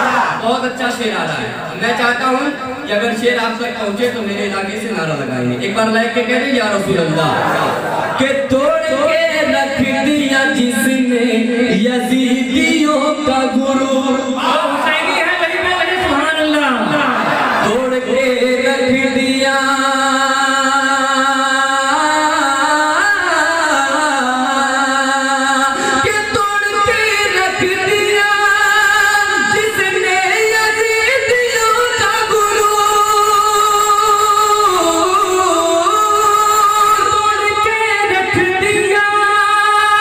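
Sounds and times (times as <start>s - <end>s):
man singing into a microphone: 8.2s - 40.0s.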